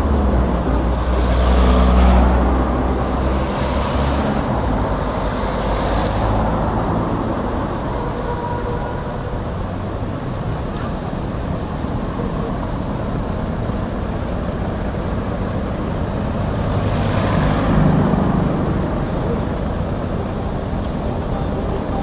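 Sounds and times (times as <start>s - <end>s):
car passing close: 0.0s - 10.2s, 15.6s - 20.2s
traffic road rumble: 0.0s - 22.0s.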